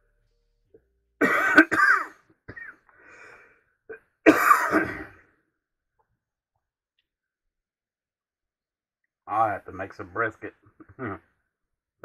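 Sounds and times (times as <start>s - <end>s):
man coughing: 1.2s - 2.8s, 4.3s - 5.2s
catches of breath: 2.9s - 3.7s.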